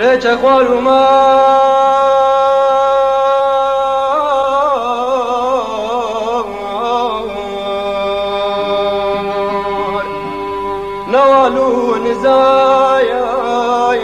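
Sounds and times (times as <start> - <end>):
sustained accompaniment note: 6.2 - 14.0
man singing melisma: 11.0 - 14.0.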